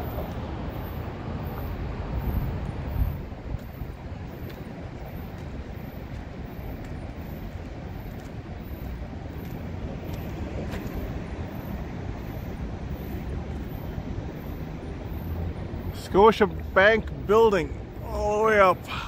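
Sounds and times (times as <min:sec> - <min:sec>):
faint footsteps on pavement: 0:00.0 - 0:14.0
low rumble of passing traffic: 0:00.0 - 0:19.0.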